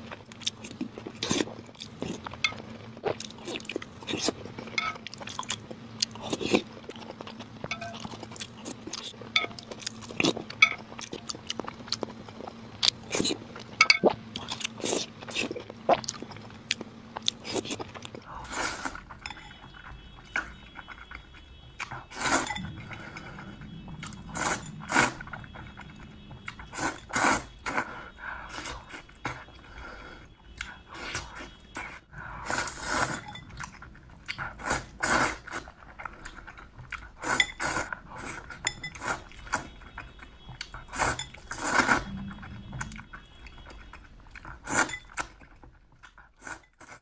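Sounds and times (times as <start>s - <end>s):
spoon clinking against ceramic bowl: 7.7s - 8.1s, 19.2s - 19.6s.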